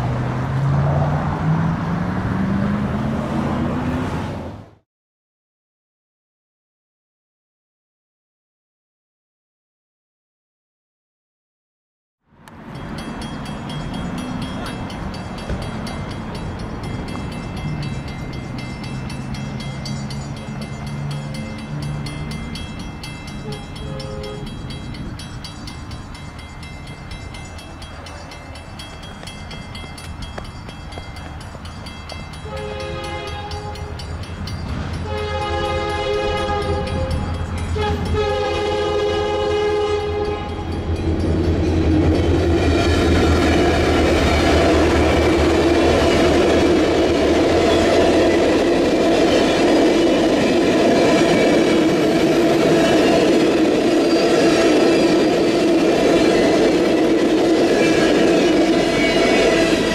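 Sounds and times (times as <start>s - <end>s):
train wheels rushing on rail: 12.5s - 59.9s
train horn blasts: 23.4s - 24.6s, 32.4s - 34.1s, 35.0s - 40.8s, 56.3s - 59.9s.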